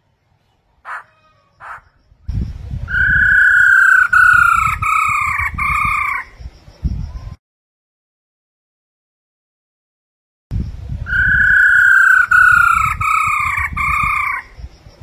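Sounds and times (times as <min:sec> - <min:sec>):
bird whistling call: 0:02.9 - 0:06.2, 0:11.1 - 0:14.5.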